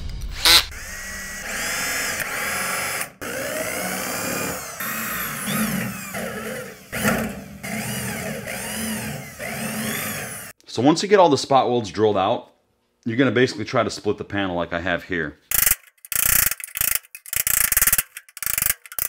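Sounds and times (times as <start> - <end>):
drill whining into metal: 0.4 - 10.6.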